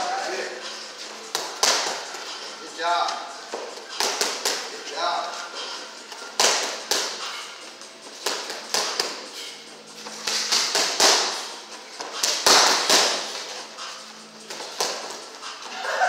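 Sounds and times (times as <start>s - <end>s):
boxing gloves striking mitts: 1.3s - 2.2s, 3.6s - 4.7s, 6.4s - 7.4s, 8.2s - 9.3s, 10.1s - 13.6s, 14.5s - 15.2s.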